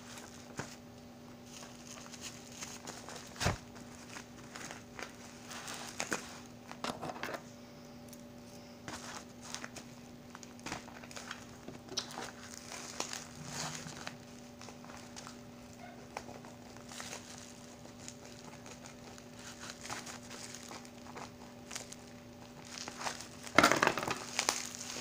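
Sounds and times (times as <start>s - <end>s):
bubble wrap crinkling: 0.0s - 6.8s, 8.8s - 25.0s
faint steady hum: 0.0s - 25.0s.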